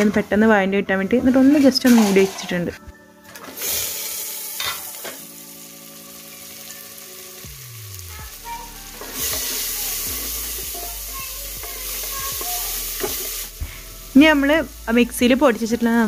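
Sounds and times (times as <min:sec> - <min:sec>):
onions sizzling in oil: 0:03.5 - 0:16.0.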